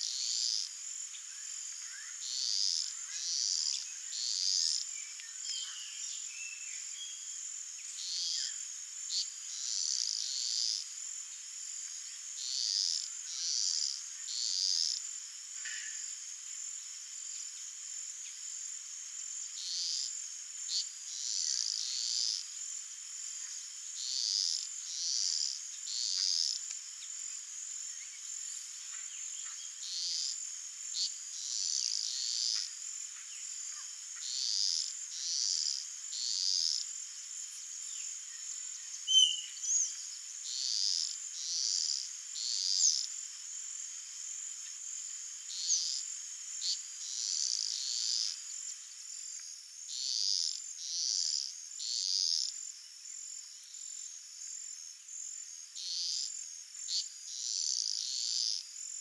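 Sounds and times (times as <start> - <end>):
high-pitched insect drone: 0.0 - 59.0.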